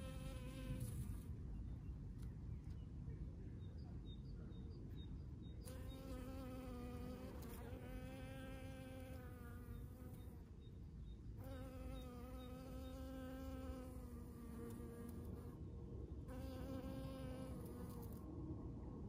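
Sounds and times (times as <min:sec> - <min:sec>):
honey bee buzzing: 0:05.7 - 0:10.2, 0:11.4 - 0:15.5, 0:16.3 - 0:18.1.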